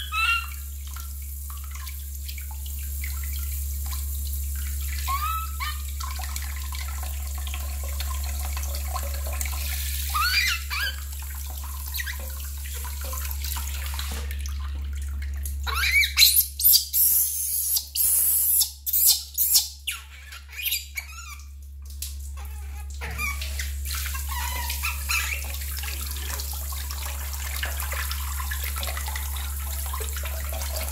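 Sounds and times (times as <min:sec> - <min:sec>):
high-pitched screams: 0:00.0 - 0:00.6, 0:05.1 - 0:05.8, 0:10.1 - 0:11.0
baby monkey squealing: 0:00.0 - 0:00.7, 0:05.0 - 0:05.8, 0:10.0 - 0:11.1, 0:15.6 - 0:21.5, 0:22.4 - 0:23.6, 0:24.2 - 0:25.5
tap water running into metal basin: 0:00.0 - 0:30.9.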